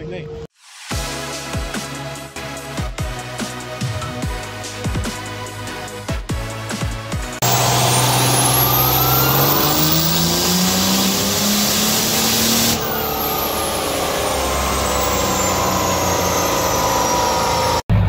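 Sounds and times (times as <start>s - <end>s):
diesel engine revving under load: 7.3s - 18.0s
turbo whistle: 7.4s - 17.8s.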